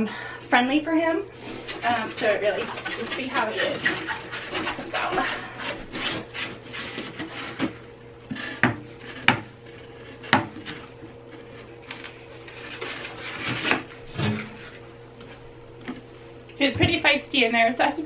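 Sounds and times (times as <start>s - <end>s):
rubbing and scraping: 1.4s - 15.5s.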